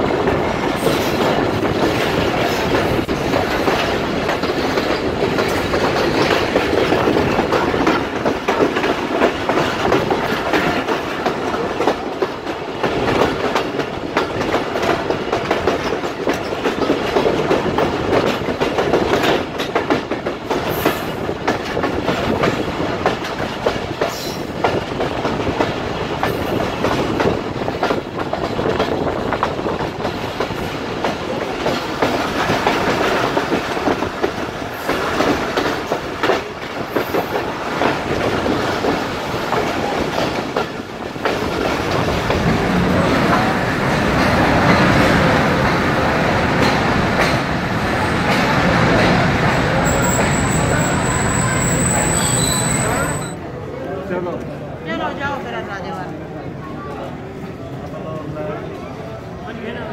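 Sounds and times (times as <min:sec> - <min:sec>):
train wheels clicking over rail joints: 0:00.0 - 0:53.4
rumble of moving coaches: 0:00.0 - 0:59.9.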